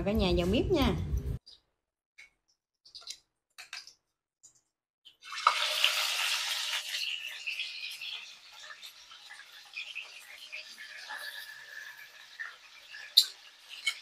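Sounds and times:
fish sizzling in hot oil: 5.2s - 14.0s.

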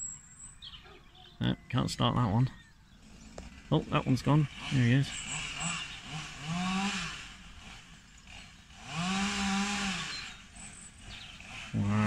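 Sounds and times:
distant chainsaw revving: 2.9s - 12.0s.

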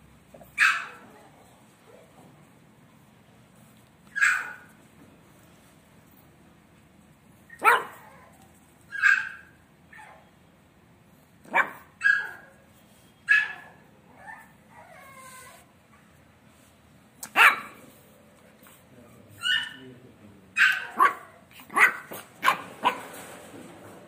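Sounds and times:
puppy whining: 13.3s - 16.2s.

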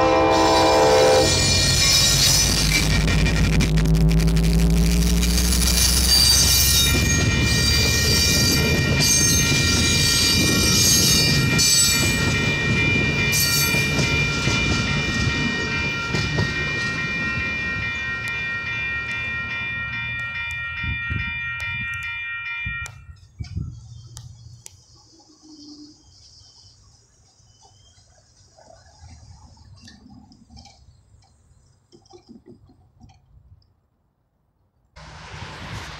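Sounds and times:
crossing warning bell ringing: 0.0s - 3.5s, 5.5s - 23.4s
train cars rolling past: 0.0s - 28.4s, 35.0s - 35.9s
high-pitched wheel noise: 0.4s - 23.7s.

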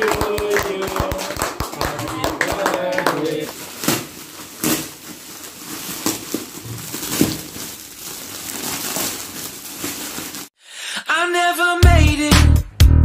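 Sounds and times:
plastic gift wrap crinkling: 3.3s - 10.6s.

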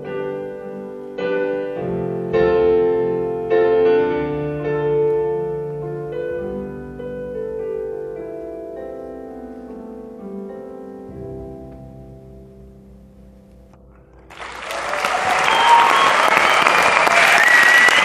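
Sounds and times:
slow piano chords: 0.0s - 15.8s
audience applause: 14.2s - 18.0s.

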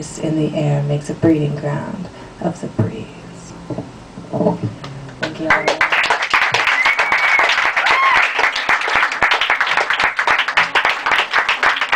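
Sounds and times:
high calls: 4.7s - 8.6s
audience applauding: 4.8s - 11.9s.

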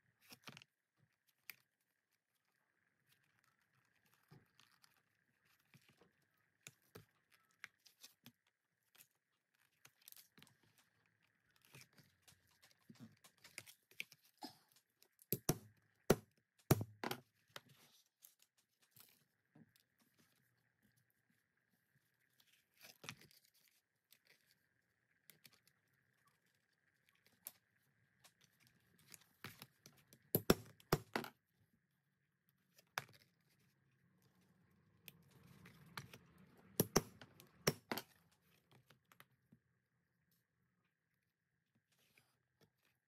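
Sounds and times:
rustling and scraping: 2.5s - 15.2s, 16.9s - 30.3s.

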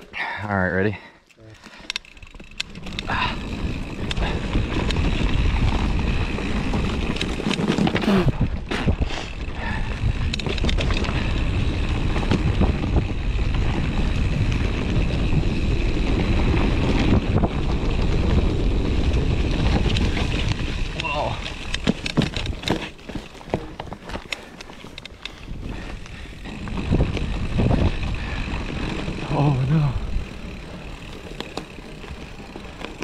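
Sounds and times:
bike clicks and rattles: 0.0s - 33.0s
bike tyre noise on dirt: 0.0s - 33.0s
wind buffeting microphone: 3.0s - 22.6s, 25.4s - 31.2s.

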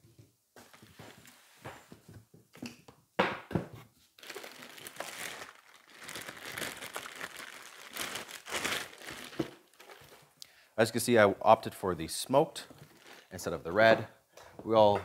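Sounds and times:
plastic packaging crinkling: 4.2s - 10.4s, 12.8s - 13.3s.

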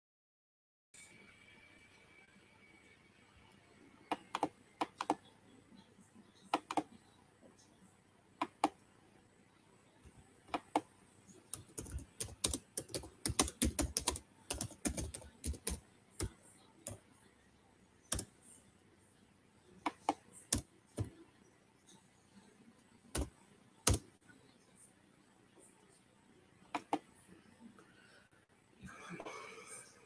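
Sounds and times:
computer keyboard typing: 4.1s - 5.2s, 6.5s - 6.9s, 8.4s - 8.8s, 10.5s - 17.0s, 18.1s - 18.4s, 19.8s - 21.1s, 23.1s - 24.1s, 26.7s - 27.1s.

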